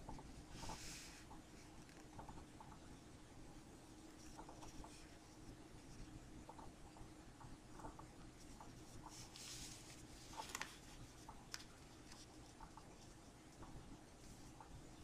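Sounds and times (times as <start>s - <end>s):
soft paper ticks: 0.0s - 2.9s, 4.1s - 14.8s
paper strip rustling: 9.0s - 12.4s.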